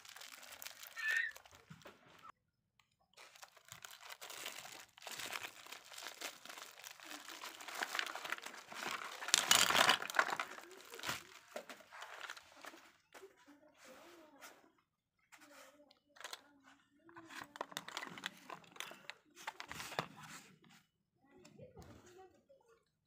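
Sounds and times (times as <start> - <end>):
bubble wrap crinkling: 0.0 - 2.3, 3.2 - 12.8, 17.3 - 19.7.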